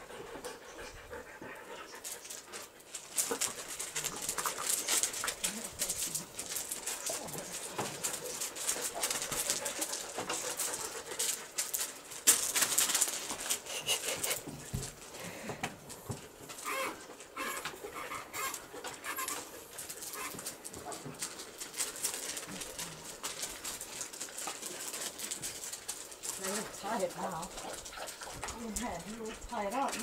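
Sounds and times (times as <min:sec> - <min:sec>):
paws scuffing on gravel: 0:01.8 - 0:15.1, 0:19.2 - 0:30.0
dog sniffing: 0:13.4 - 0:15.0.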